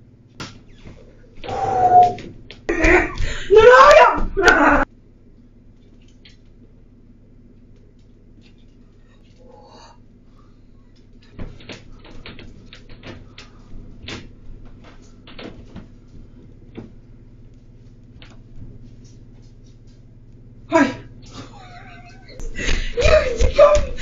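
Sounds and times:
knocks and clicks of moving about: 10.8s - 20.4s.

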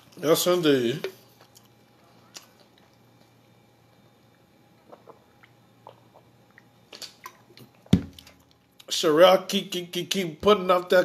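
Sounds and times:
person swallowing gulps: 4.8s - 8.3s.

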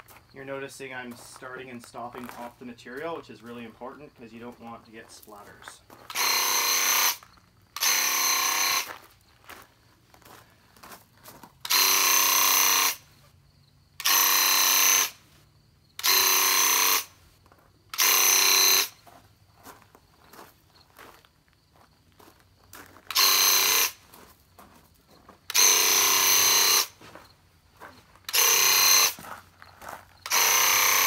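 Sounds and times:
paint sprayer buzzing: 6.1s - 7.2s, 7.8s - 8.9s, 11.6s - 13.1s, 14.0s - 15.2s, 16.0s - 17.2s, 17.9s - 19.0s, 23.1s - 24.0s, 25.5s - 27.0s, 28.3s - 29.2s, 30.2s - 31.0s.

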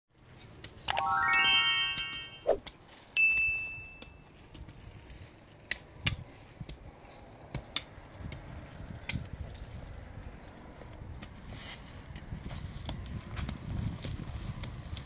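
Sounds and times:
bright chime ding: 0.9s - 2.5s, 3.2s - 4.2s.

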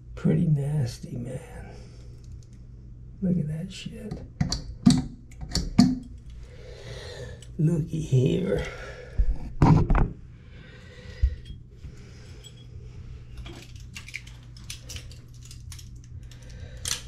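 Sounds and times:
steady low hum: 0.0s - 17.0s
small metallic clicks and scrapes: 13.4s - 17.0s.

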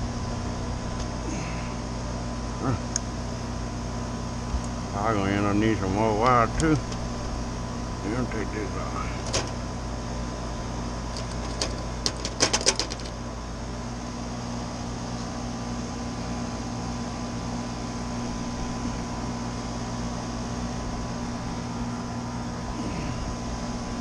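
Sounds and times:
low machine hum: 0.0s - 24.0s
wire strippers clicking: 9.2s - 9.6s, 11.1s - 13.1s.

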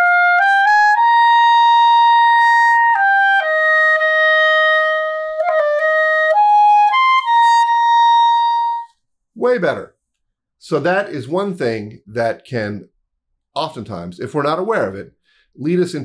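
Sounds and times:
clarinet playing held notes: 0.0s - 9.0s.

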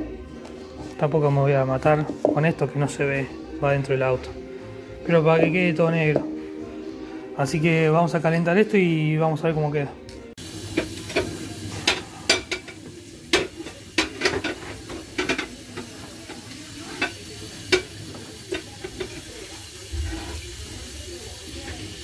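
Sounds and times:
spray can tapping metal saucepan: 10.4s - 20.9s.

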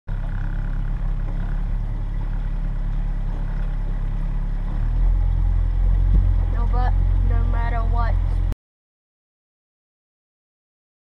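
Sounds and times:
motorboat engine droning: 0.1s - 8.6s.

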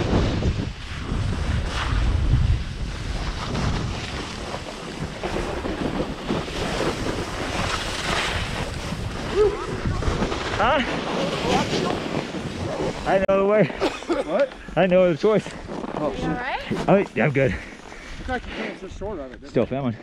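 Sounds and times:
wind buffeting microphone: 0.0s - 13.2s.

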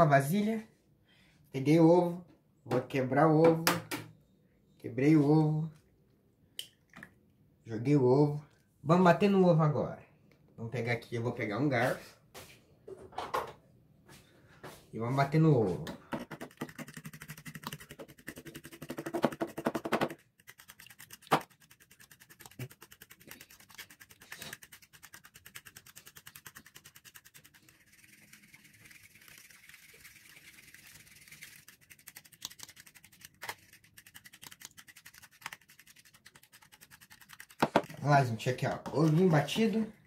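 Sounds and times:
fork beating egg: 16.0s - 38.0s.

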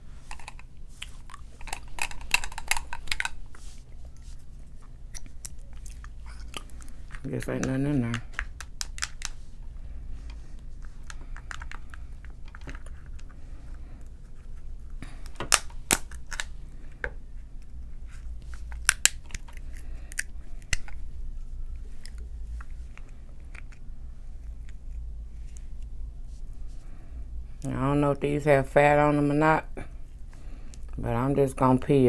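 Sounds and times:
steady low hum: 0.0s - 32.0s
shells cracking and peeling: 0.3s - 3.6s, 4.9s - 9.4s, 10.9s - 13.3s, 15.0s - 17.0s, 18.4s - 21.1s
chewing: 0.3s - 7.3s.

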